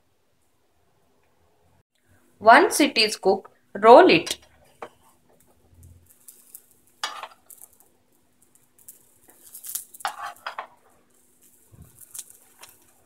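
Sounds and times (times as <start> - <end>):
spatula scraping on a pan: 9.4 - 10.8.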